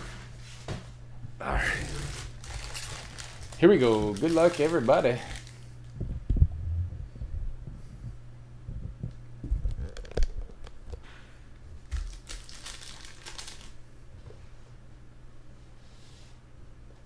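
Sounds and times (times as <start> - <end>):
foil wrapper crinkling and tearing: 1.7 - 5.9, 11.8 - 13.8.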